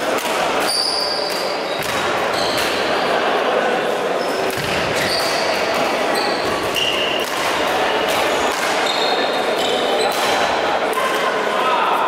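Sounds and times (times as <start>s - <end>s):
echoing badminton play: 0.0s - 12.0s
shoes squeaking on court floor: 0.6s - 3.0s, 4.2s - 7.3s, 8.2s - 10.4s.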